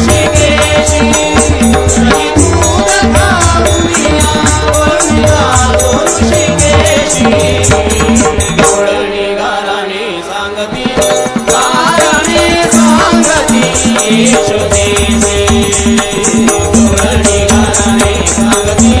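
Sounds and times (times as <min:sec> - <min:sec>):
hand drums: 0:00.0 - 0:09.0, 0:10.8 - 0:19.0
devotional song melody: 0:00.0 - 0:19.0.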